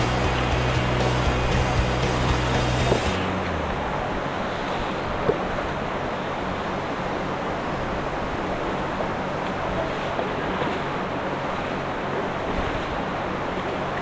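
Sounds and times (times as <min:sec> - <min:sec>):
water rushing over rocks: 0:00.0 - 0:14.0.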